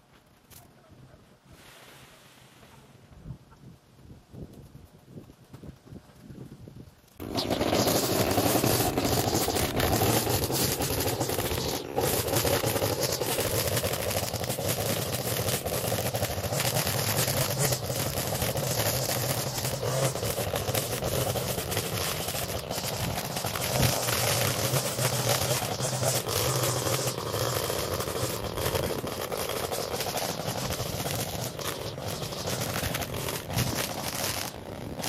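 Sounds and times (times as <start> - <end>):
clicks and scraping: 7.1 - 35.0
small gas engine running: 7.2 - 35.0.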